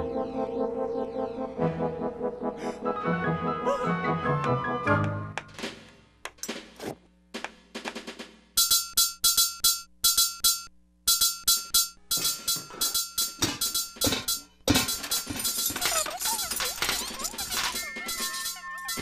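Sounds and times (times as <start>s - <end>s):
rhythmic percussive clinks and knocks: 7.8s - 19.0s.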